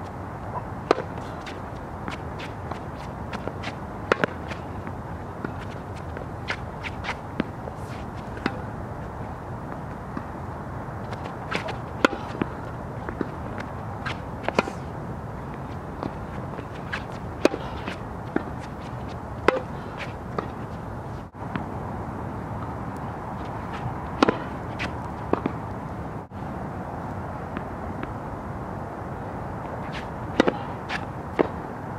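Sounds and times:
steady background noise: 0.0 - 31.9
tennis ball hit by racket: 0.5 - 7.6, 11.1 - 14.9, 16.0 - 20.6, 24.2 - 25.6, 29.9 - 31.6
tennis ball bouncing on hard court: 0.5 - 8.7, 11.1 - 20.7, 23.4 - 25.6, 29.9 - 31.6.

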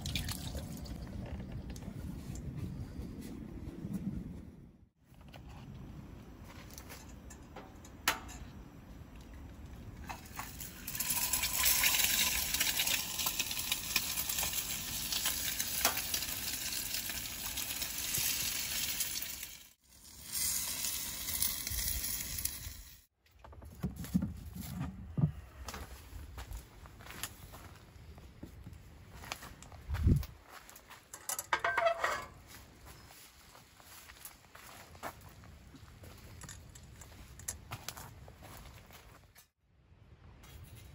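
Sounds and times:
eggs sizzling in a pan: 10.5 - 23.0.

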